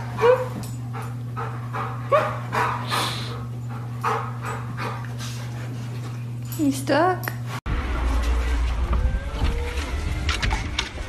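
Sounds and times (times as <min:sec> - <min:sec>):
dog panting: 0:00.9 - 0:06.4.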